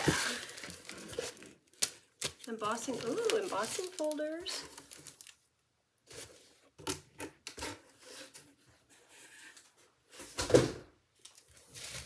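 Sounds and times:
packaging taps clicks and rustles: 1.8s - 5.4s.

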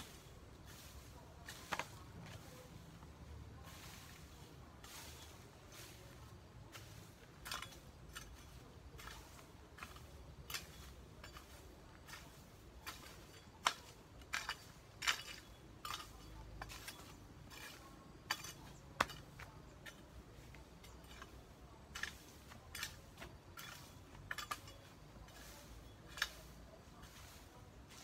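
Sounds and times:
metal hoe chopping soil: 0.0s - 2.7s, 3.7s - 28.0s
hoe blade clinking: 6.8s - 26.6s.

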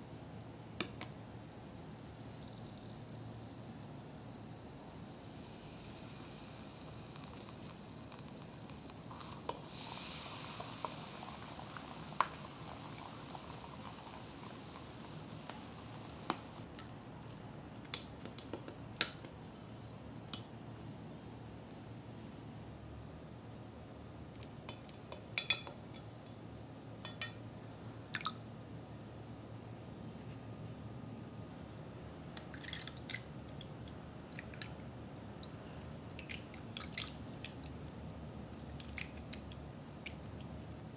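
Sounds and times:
soda fizzing: 1.6s - 16.7s.

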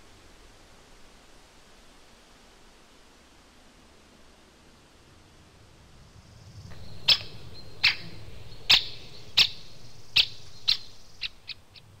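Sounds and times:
low rumble: 5.5s - 12.0s.

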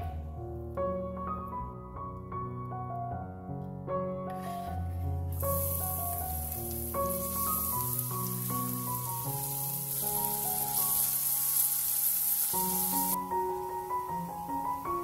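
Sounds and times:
light background music: 0.0s - 15.0s
onion sizzling in oil: 5.3s - 15.0s.

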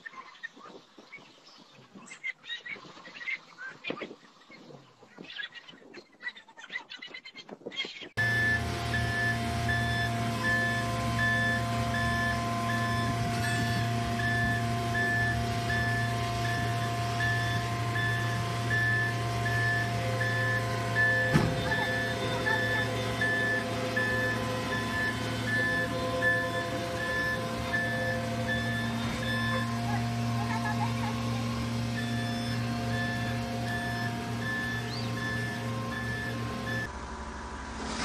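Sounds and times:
backup alarm beeping: 8.2s - 36.9s
diesel engine running: 8.2s - 38.0s.

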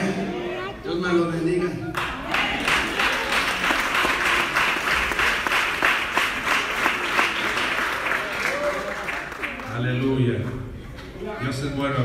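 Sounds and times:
crowd applauding: 1.9s - 10.6s.

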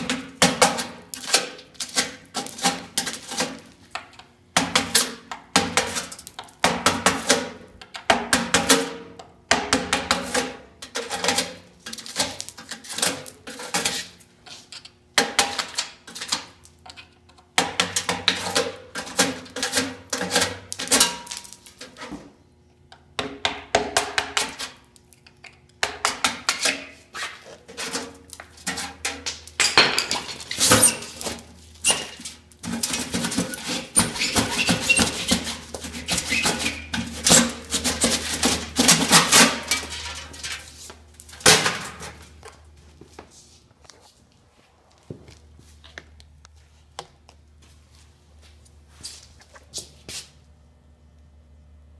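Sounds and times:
metal mailbox clanking and scraping: 10.2s - 14.2s, 30.0s - 42.4s.

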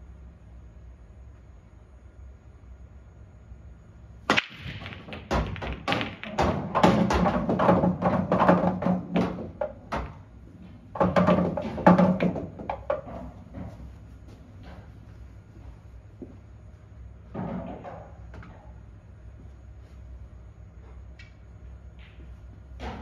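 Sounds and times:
cue ball smashing into rack: 4.3s - 10.2s, 10.9s - 13.7s
pool balls clicking together: 4.3s - 13.9s
balls rumbling down return channel: 4.3s - 19.4s, 20.4s - 23.0s.

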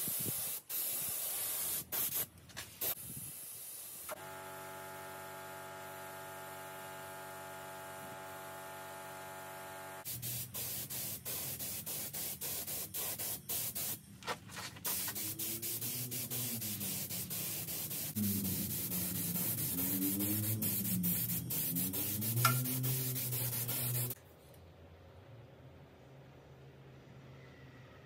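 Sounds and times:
paint spray gun hissing: 0.0s - 2.2s, 10.0s - 14.0s, 14.9s - 24.2s.

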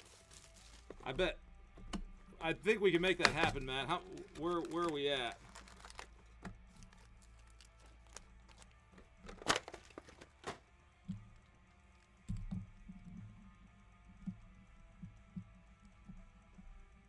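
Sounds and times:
card packs handled on table: 0.0s - 2.0s, 2.8s - 10.6s
faint background music: 0.0s - 17.0s.

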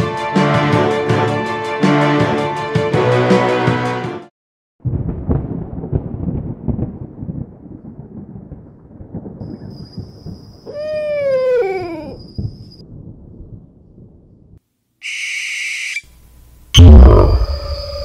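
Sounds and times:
rolling thunder: 4.8s - 10.6s, 12.2s - 14.6s.

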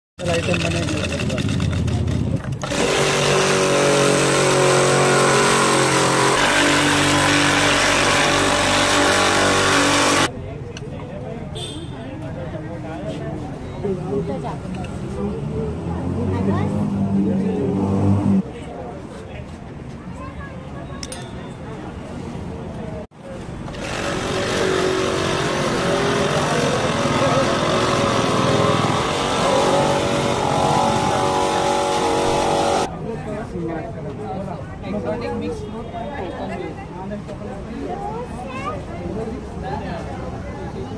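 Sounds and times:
ice-shaving machine grinding ice: 2.6s - 10.3s, 23.5s - 32.9s
vehicle engine running: 23.4s - 32.9s.

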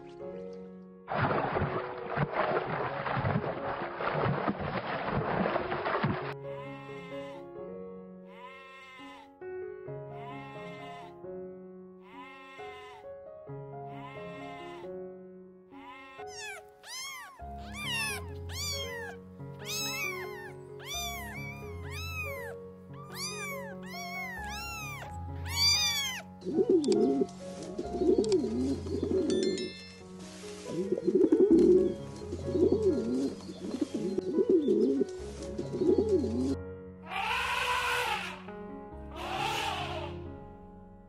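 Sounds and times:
background music: 0.0s - 41.0s
cat meowing: 10.2s - 11.1s, 12.0s - 13.0s, 13.9s - 14.8s, 15.8s - 26.3s, 37.1s - 38.4s, 39.2s - 40.1s
dove cooing: 26.4s - 27.3s, 27.9s - 29.3s, 30.7s - 31.8s, 32.4s - 36.6s.

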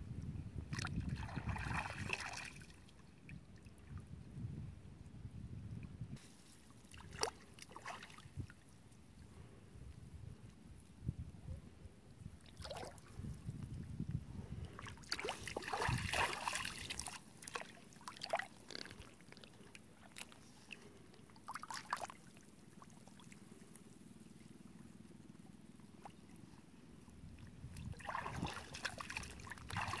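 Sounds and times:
water splashing and trickling: 0.7s - 4.0s, 6.3s - 8.7s, 12.4s - 13.6s, 14.6s - 23.5s, 27.4s - 30.0s.

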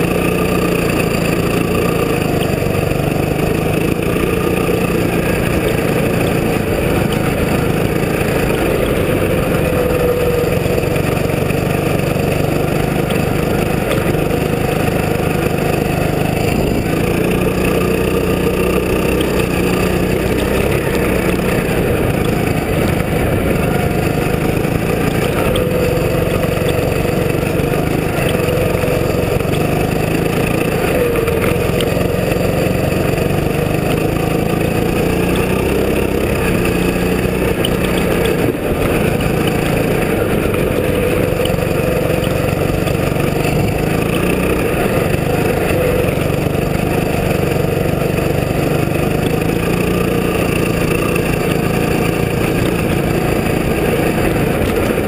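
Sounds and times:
go-kart engine running hard: 0.0s - 55.0s.

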